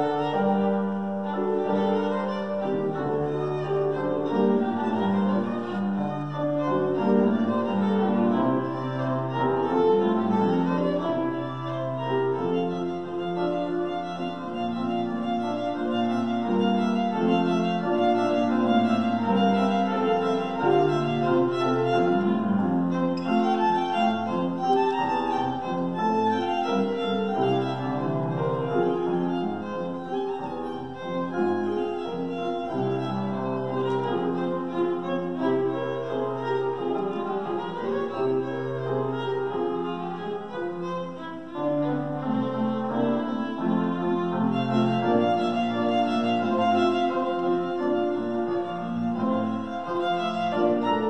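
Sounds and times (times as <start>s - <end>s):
piano chords: 0.0s - 51.0s
violin melody: 0.0s - 51.0s.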